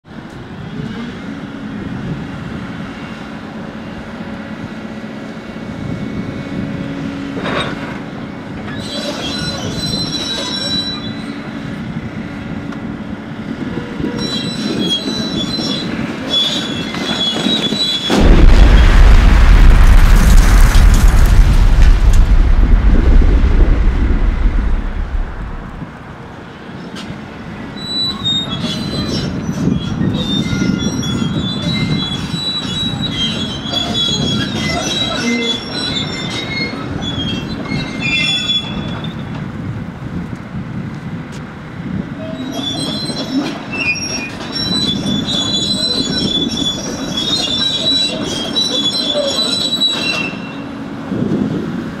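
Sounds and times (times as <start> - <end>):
excavator working: 0.1 - 52.0
metallic squeals and clicks: 8.6 - 11.5, 14.0 - 18.2, 27.8 - 39.4, 42.2 - 50.7
deep rumble of collapsing wall: 18.1 - 26.2.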